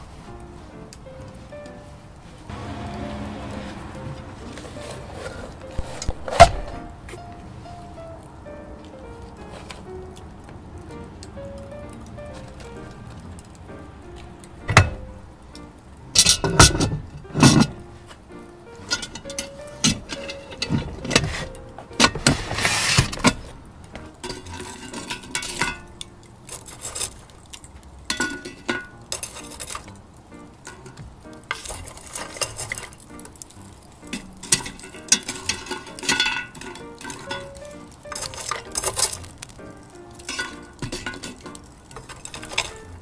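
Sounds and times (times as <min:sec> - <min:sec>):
metal lid scraping: 0:02.5 - 0:06.9, 0:18.8 - 0:23.6, 0:24.2 - 0:25.9, 0:30.7 - 0:33.0, 0:33.8 - 0:39.5, 0:40.2 - 0:42.8
charcoal clinking on iron lid: 0:16.0 - 0:17.8, 0:18.7 - 0:43.0.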